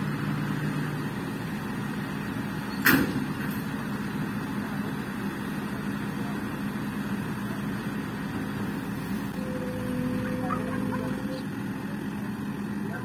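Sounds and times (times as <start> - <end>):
excavator diesel engine: 0.0 - 13.0
faint high steady tone: 9.3 - 11.4.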